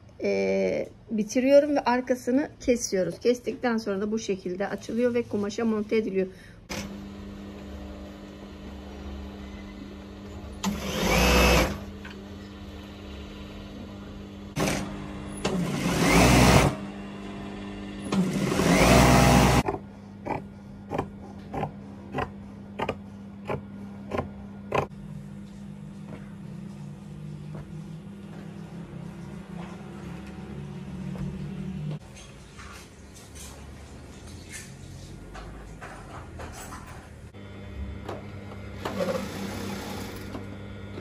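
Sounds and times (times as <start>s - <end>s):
sewing machine motor whining: 10.6s - 11.8s, 15.4s - 16.8s, 18.1s - 19.6s, 38.8s - 40.4s.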